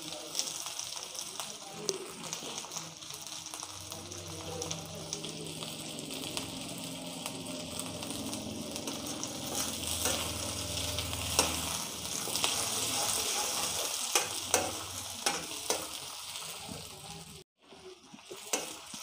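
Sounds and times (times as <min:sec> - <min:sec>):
vegetables sizzling in oil: 0:00.0 - 0:19.0
low hum: 0:05.7 - 0:12.4.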